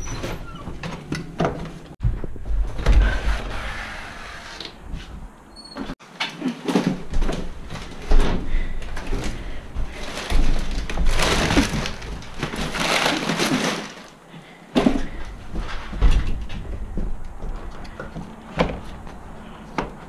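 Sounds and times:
crinkly rustling: 8.8s - 14.2s.

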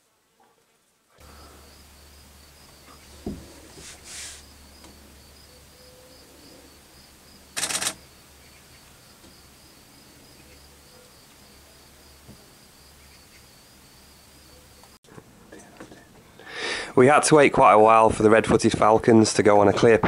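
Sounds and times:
pulsing insect-like trill: 4.4s - 14.9s.

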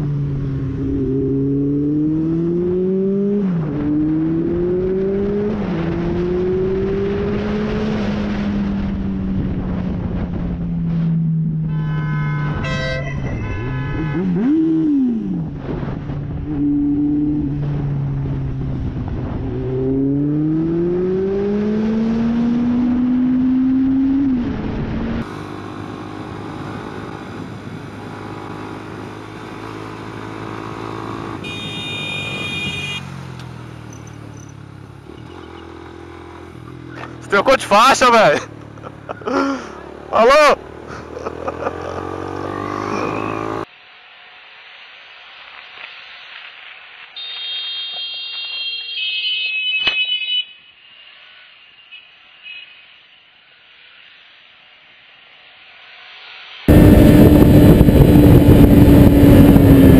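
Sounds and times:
motorcycle engine accelerating: 0.0s - 37.6s, 38.3s - 43.7s, 55.5s - 59.9s
wind rush on microphone: 5.2s - 11.0s, 15.4s - 19.8s, 26.2s - 29.2s, 56.7s - 59.9s
vehicle horn: 11.6s - 14.6s, 31.4s - 33.2s, 47.2s - 51.0s, 51.6s - 53.3s.

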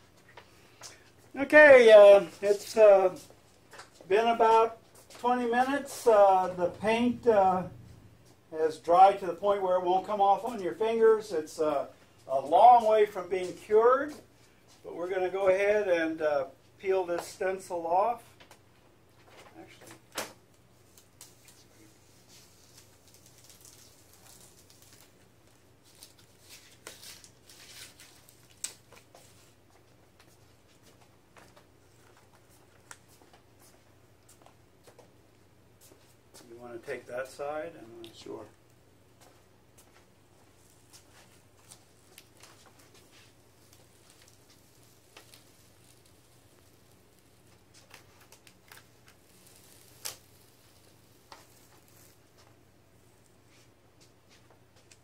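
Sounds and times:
stencil being peeled off: 20.2s - 29.6s, 40.3s - 52.5s.

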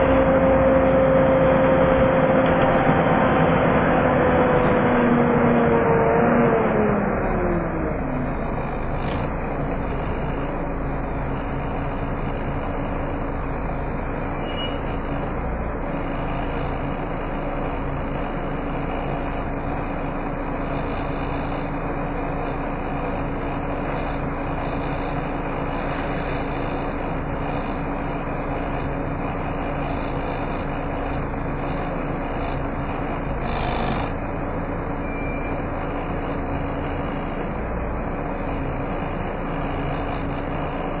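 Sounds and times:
bus engine idling: 7.0s - 41.0s
cooling fan whine: 24.4s - 35.3s.

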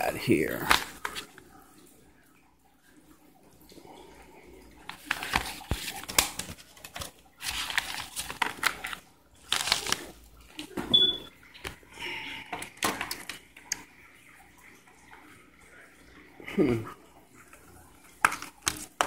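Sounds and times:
paper mailer rustling: 4.9s - 10.7s
plastic packaging crinkling: 4.9s - 10.8s, 18.1s - 19.0s.

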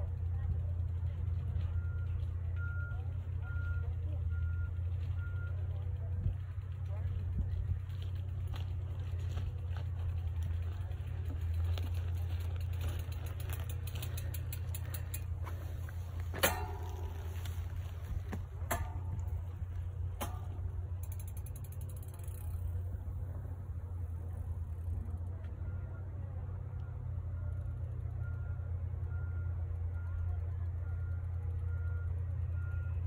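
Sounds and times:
bicycle freehub ticking: 0.0s - 32.3s
steady low rumble: 0.0s - 33.0s
sharp metallic clicks: 11.6s - 23.2s.

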